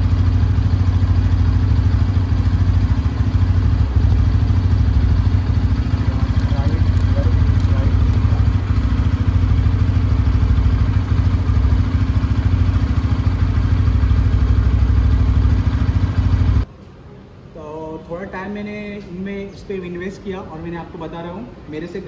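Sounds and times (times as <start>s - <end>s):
motorcycle engine idling: 0.0s - 16.7s.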